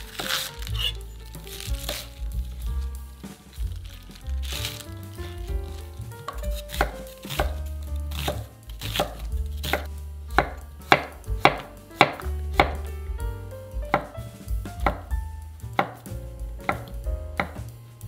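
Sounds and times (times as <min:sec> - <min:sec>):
knife chopping on wooden board: 0:05.6 - 0:12.8, 0:16.6 - 0:17.6.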